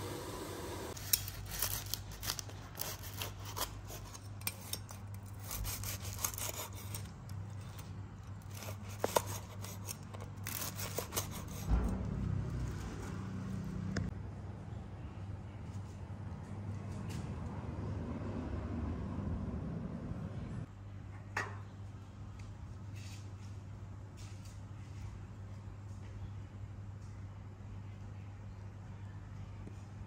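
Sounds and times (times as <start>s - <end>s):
steady low hum: 0.0s - 1.0s
utensils scraping ceramic dishes: 0.9s - 7.9s.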